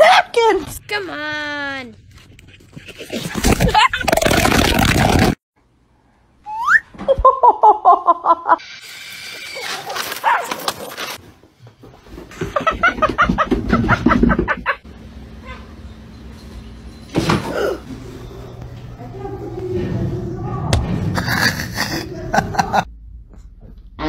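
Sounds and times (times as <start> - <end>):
dogs barking and yapping: 9.5 - 11.2.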